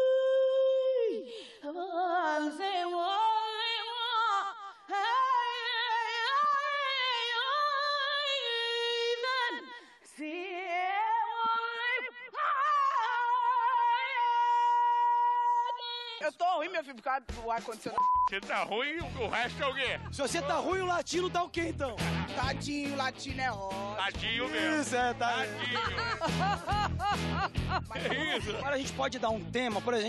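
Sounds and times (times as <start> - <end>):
woman singing unaccompanied: 0.0 - 16.2.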